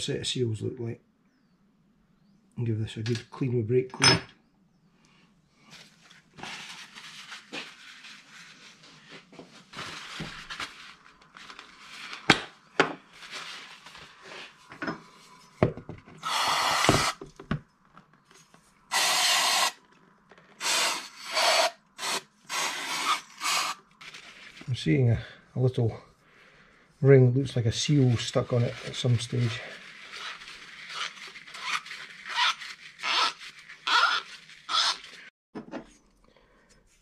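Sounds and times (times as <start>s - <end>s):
aerosol spray hissing: 18.9s - 19.8s.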